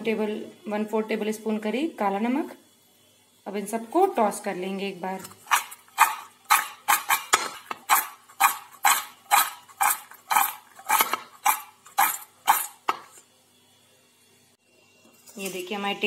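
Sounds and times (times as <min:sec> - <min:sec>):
snacks rattling in a metal bowl: 0:05.4 - 0:12.8.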